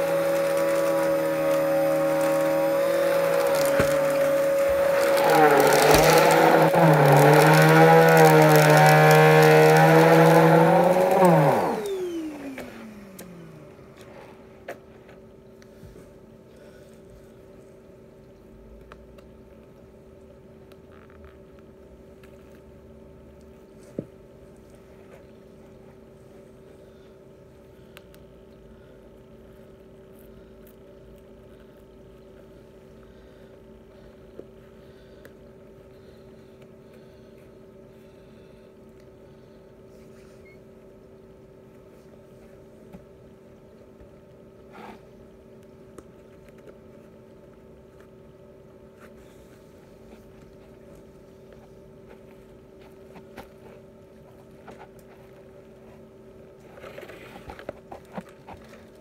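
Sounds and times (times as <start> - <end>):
vacuum cleaner running: 0.0 - 16.1
faint steady hum: 0.0 - 59.0.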